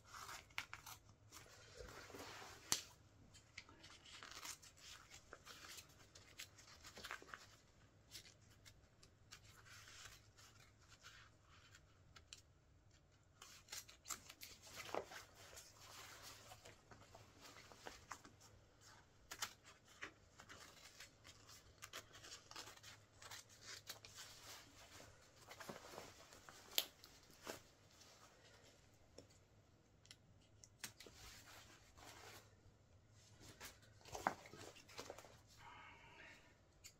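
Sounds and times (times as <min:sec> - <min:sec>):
fabric rustling: 0:00.0 - 0:02.9, 0:14.5 - 0:29.0, 0:31.0 - 0:35.5.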